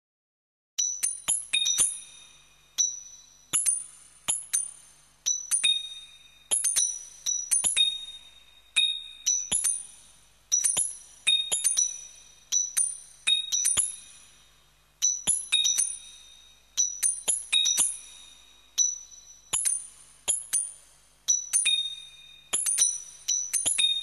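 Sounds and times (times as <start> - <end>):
bell-like synthetic pings: 21.3 - 24.0.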